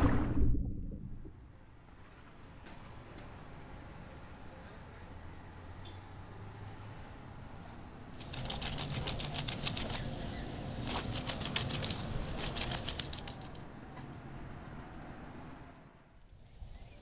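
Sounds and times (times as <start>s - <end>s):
rapid fluttering clatter: 8.2s - 13.6s.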